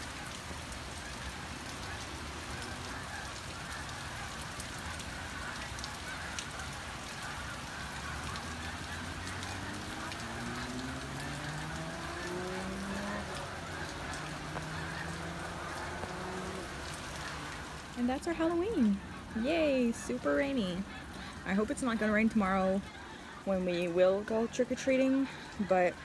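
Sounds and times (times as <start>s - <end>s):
rain on roofs: 0.0s - 26.0s
distant low drone rising: 8.6s - 21.4s.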